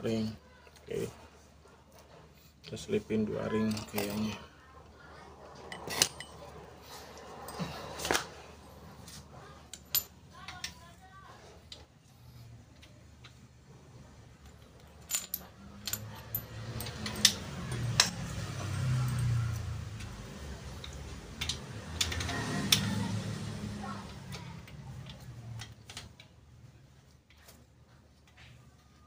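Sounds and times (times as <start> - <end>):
metal clinks and ticks: 14.4 - 20.2.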